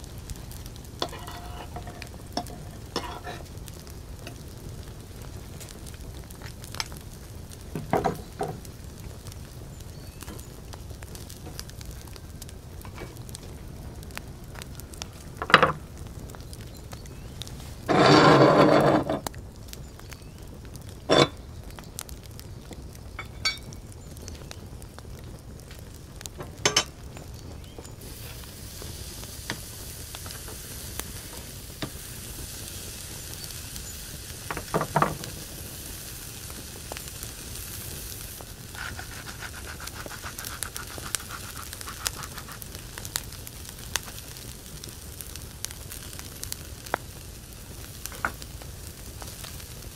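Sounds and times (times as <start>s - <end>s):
steaks sizzling on a grill: 0.0s - 24.7s, 25.7s - 49.9s
tongs clicking on grill grate: 1.0s - 3.4s.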